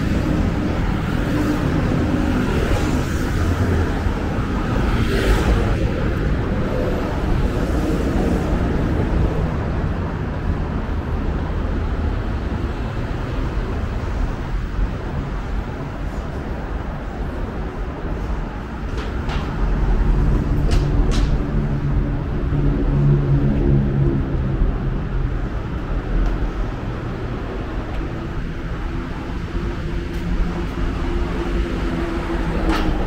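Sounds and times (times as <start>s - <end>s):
road traffic: 0.0s - 33.0s
vehicle passing: 19.5s - 33.0s.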